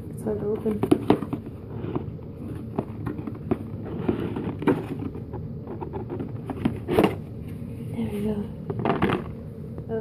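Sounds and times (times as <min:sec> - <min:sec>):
fingers scraping and rustling on box: 0:00.3 - 0:07.3.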